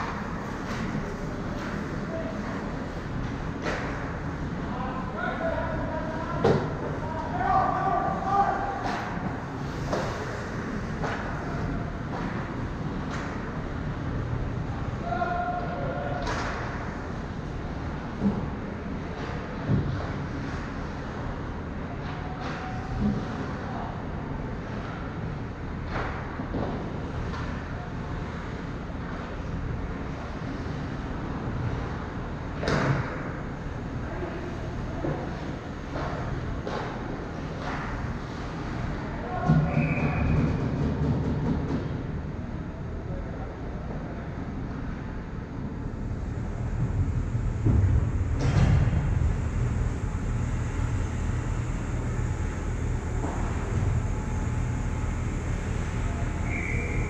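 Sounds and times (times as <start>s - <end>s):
distant hockey play: 34.4s - 42.1s, 52.7s - 57.0s
low rumble: 45.6s - 57.0s.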